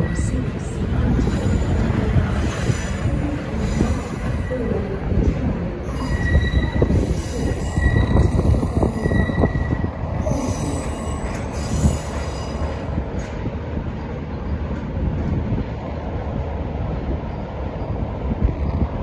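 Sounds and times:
heavy rumble of carriages: 0.0s - 19.0s
train wheels squealing: 5.9s - 12.8s.

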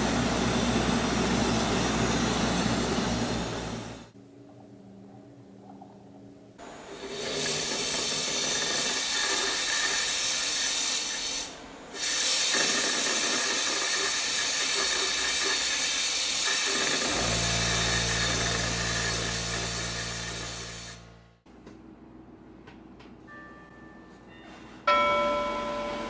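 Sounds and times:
low steady hum: 4.1s - 7.0s
powder-coating gun hissing: 7.2s - 17.2s.

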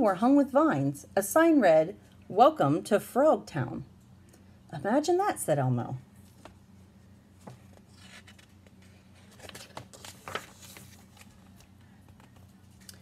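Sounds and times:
book page turning: 7.4s - 13.0s.

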